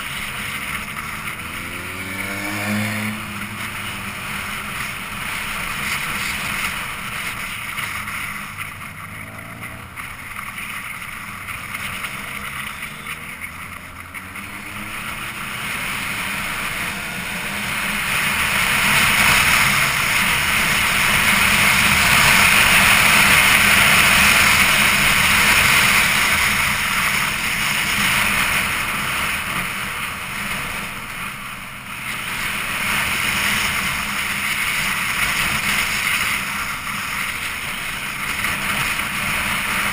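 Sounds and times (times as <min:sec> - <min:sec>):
motorcycle engine running: 0:00.0 - 0:39.9.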